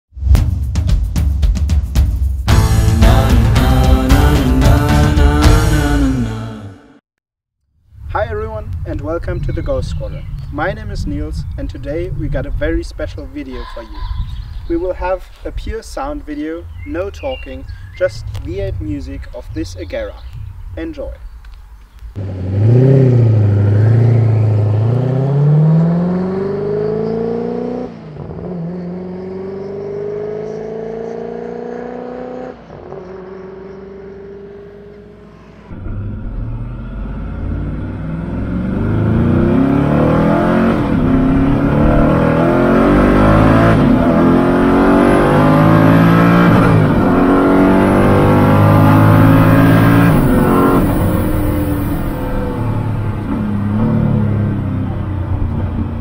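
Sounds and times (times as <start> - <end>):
car engine accelerating: 22.0 - 56.0.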